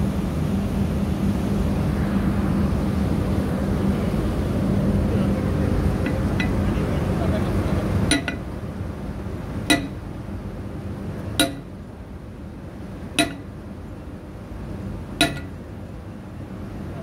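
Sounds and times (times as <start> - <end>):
low steady rumble: 0.0 - 17.0
hammer striking steel bar: 8.1 - 8.4, 9.7 - 10.0, 11.4 - 11.7, 13.2 - 13.5, 15.2 - 15.5.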